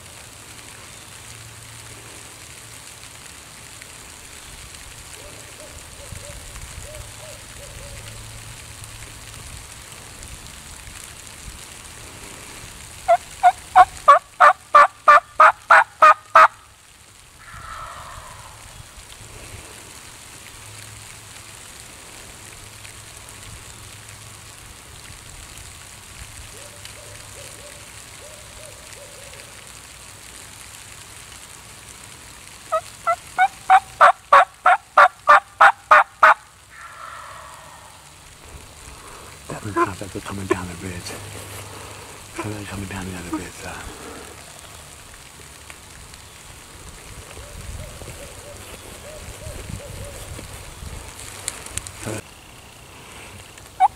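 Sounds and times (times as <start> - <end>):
turkey yelping: 13.1 - 16.5, 17.4 - 18.6, 32.7 - 38.0
turkey gobbling: 13.1 - 16.6, 17.4 - 18.7, 32.7 - 38.1.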